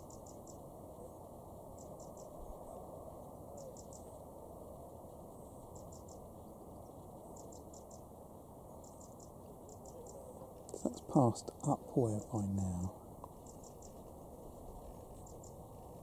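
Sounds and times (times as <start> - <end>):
faint high-pitched chirping: 0.0 - 16.0.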